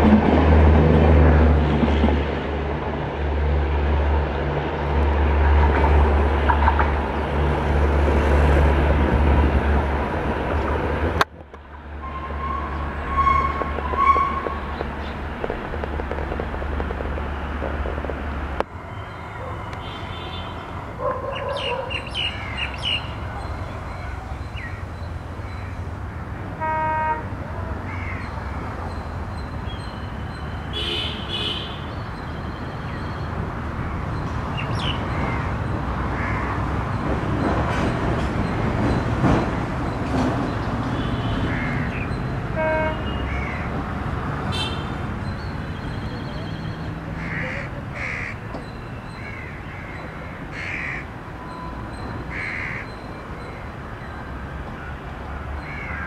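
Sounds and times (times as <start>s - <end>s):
train rumbling: 0.0s - 31.0s, 33.3s - 49.1s
locomotive rumble: 0.0s - 31.4s, 32.0s - 55.6s
crows cawing: 27.9s - 28.3s, 35.2s - 36.6s, 41.5s - 42.0s, 43.3s - 43.7s, 47.2s - 48.4s, 49.1s - 51.1s, 52.3s - 53.0s, 55.6s - 56.0s.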